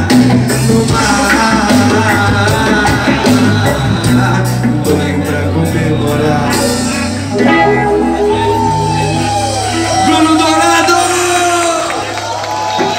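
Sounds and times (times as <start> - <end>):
person singing: 0.0 - 10.1
bass line: 0.0 - 12.9
drum kit: 0.0 - 12.9
electric guitars: 0.0 - 12.9.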